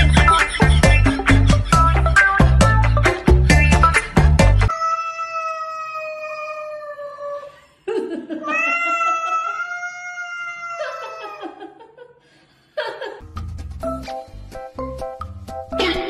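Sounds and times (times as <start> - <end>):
cat yowling: 4.7 - 7.5, 8.4 - 11.5.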